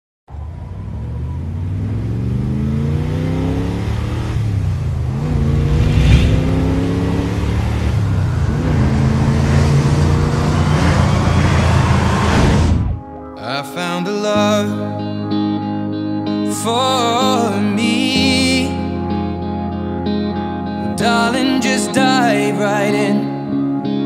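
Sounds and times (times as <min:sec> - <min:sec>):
deep engine-like rumble: 0:04.3 - 0:13.0
whoosh: 0:04.3 - 0:13.1.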